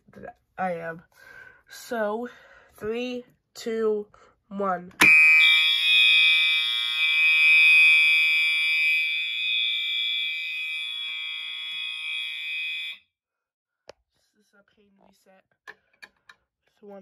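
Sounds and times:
fire alarm horns continuous tone: 5.0 - 13.2.

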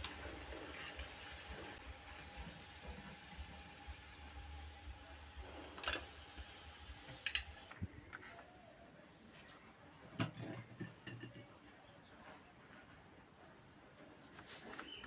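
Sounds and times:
oil sizzling in frying pan: 0.0 - 7.7.

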